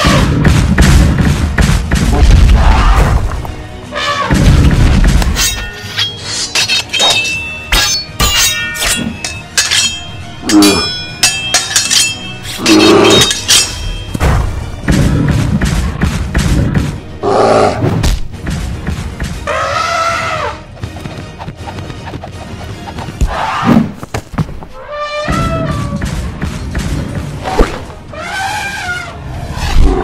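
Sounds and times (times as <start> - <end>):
thuds and crashes: 0.0 - 3.7, 4.3 - 5.6, 14.0 - 17.0
background music: 0.0 - 30.0.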